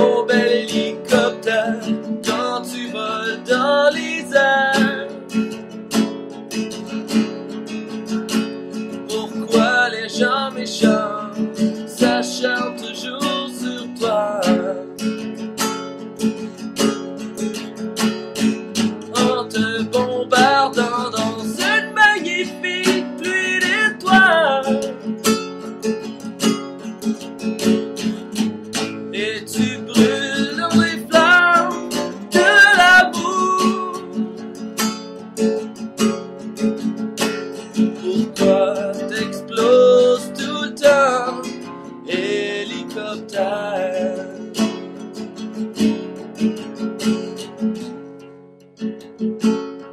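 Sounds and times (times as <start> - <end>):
person singing wordless melody: 0.0 - 5.4, 9.0 - 15.0, 19.0 - 25.1, 29.1 - 34.6, 38.0 - 44.8
acoustic guitar strumming: 0.0 - 49.9.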